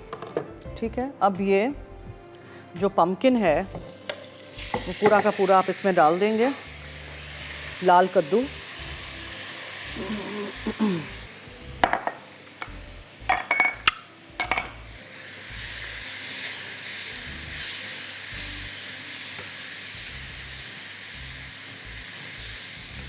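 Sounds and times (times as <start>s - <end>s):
food sizzling in oil: 3.4s - 23.0s
knocks against a pan: 11.8s - 12.2s.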